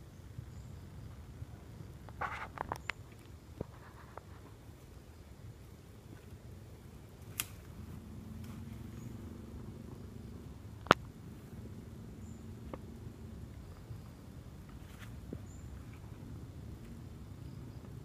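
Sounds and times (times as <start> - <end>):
faint low hum: 0.0 - 18.0
sharp stick crack: 7.3 - 7.7.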